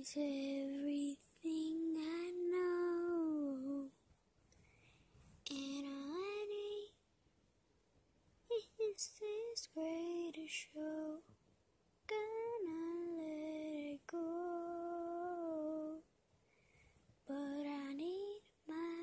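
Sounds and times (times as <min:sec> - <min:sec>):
woman singing unaccompanied: 0:00.0 - 0:04.0, 0:05.5 - 0:07.0, 0:08.5 - 0:11.2, 0:12.1 - 0:16.0, 0:17.3 - 0:19.0.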